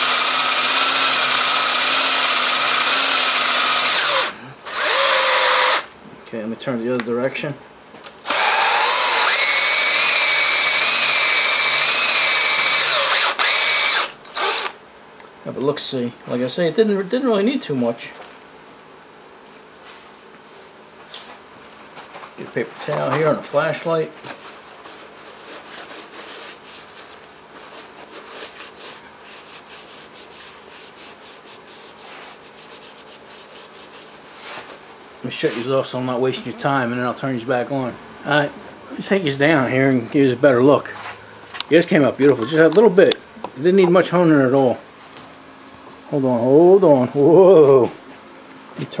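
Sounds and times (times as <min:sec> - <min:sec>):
electric drill motor whine: 0:00.0 - 0:05.9, 0:08.2 - 0:14.8
paper towel scrubbing metal bore: 0:24.8 - 0:34.8.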